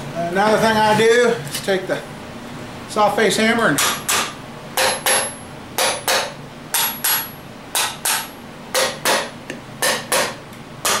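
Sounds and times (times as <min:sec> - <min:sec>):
hammer tapping metal: 0:03.8 - 0:11.0.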